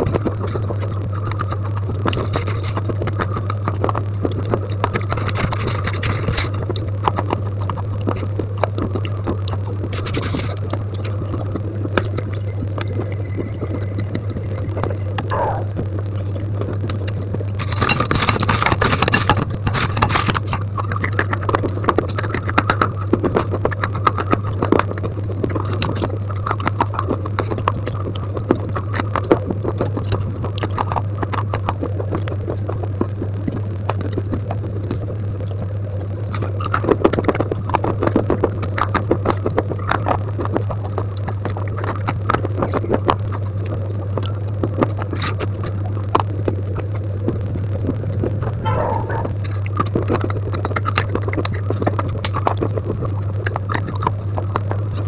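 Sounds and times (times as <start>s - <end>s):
chewing: 0.0s - 55.0s
low hum: 8.6s - 17.6s, 48.1s - 50.0s.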